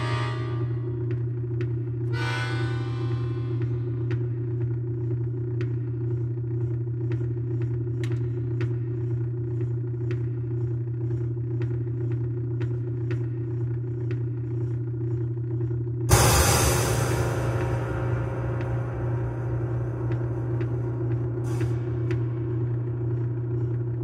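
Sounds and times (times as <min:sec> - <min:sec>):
piano string drone music: 0:00.0 - 0:04.4, 0:16.1 - 0:24.0.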